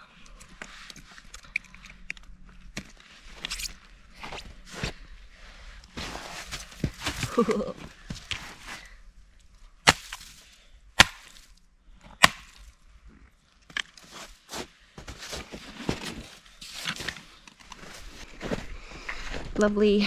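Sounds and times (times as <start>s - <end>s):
footsteps crunching in snow: 5.9s - 8.9s, 14.0s - 19.6s
snowshoes clacking: 5.9s - 8.9s, 14.0s - 18.6s
scuffs and knocks: 6.0s - 8.9s, 14.0s - 17.2s.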